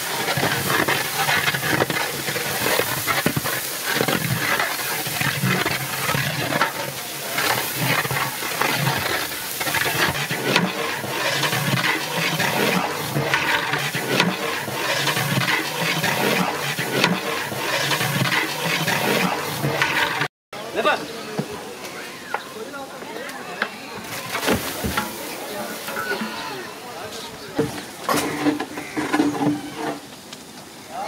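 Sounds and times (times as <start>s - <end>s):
gravy sizzling: 0.0s - 20.3s, 24.0s - 29.6s
metal spatula scraping pot: 0.0s - 20.3s, 24.1s - 26.5s, 28.1s - 30.1s.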